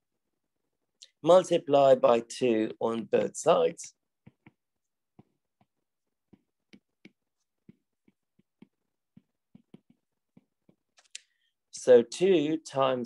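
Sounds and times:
stylus tapping on glass screen: 4.2s - 11.1s.

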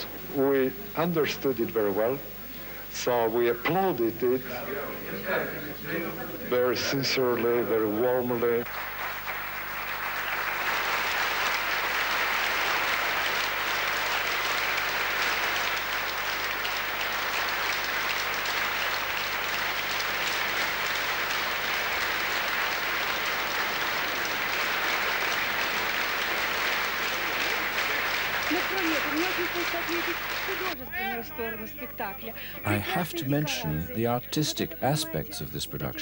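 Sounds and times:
theatre audience applauding: 0.0s - 2.2s, 6.6s - 30.8s.

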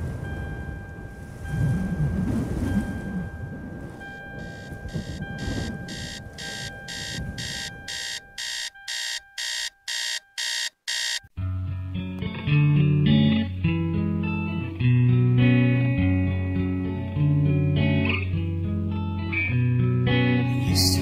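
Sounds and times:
alarm clock beeping: 2.8s - 11.3s
guitar music: 11.4s - 21.0s.

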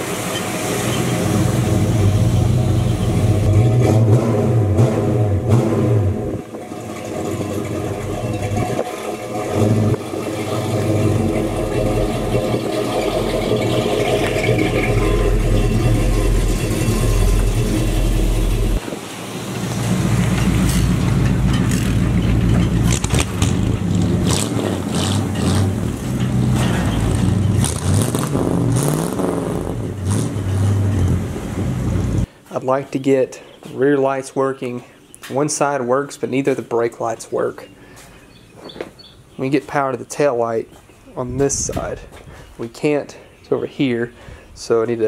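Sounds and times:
engines revving: 0.0s - 32.3s.

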